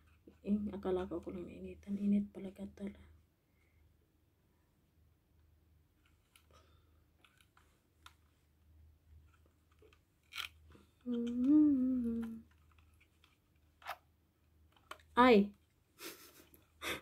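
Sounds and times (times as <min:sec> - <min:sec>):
woman humming: 0:11.0 - 0:12.5.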